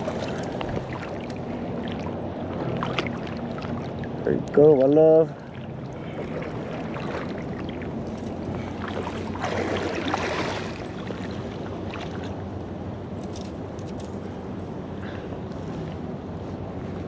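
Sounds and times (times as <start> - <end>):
river water rushing: 5.3 - 12.3.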